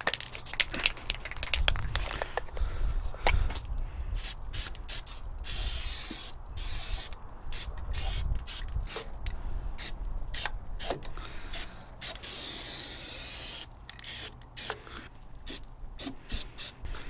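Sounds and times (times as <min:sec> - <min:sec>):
spray paint can hissing: 0:04.2 - 0:09.1, 0:09.8 - 0:14.8, 0:15.4 - 0:16.9.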